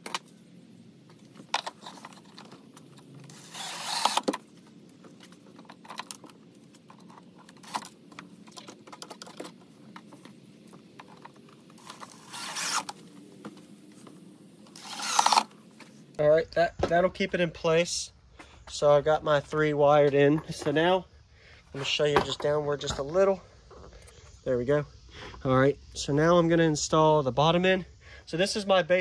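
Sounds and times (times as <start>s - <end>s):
cordless drill driving screws: 3.3s - 4.4s, 11.8s - 13.0s, 14.7s - 15.5s.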